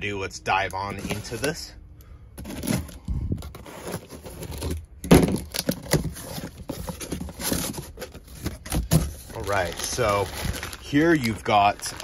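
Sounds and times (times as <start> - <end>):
cardboard flaps scraping and crackling: 2.4 - 12.0.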